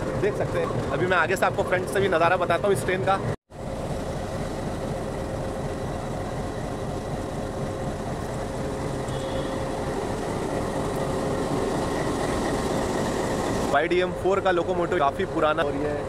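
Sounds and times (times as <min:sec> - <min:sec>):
diesel locomotive idling: 0:00.0 - 0:16.0
faint steady tone: 0:08.7 - 0:10.2.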